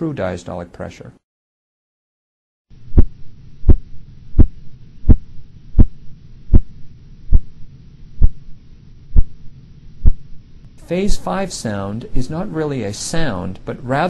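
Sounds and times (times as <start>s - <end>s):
steady low hum: 2.7s - 14.0s
muted regular heartbeat taps: 2.9s - 10.4s.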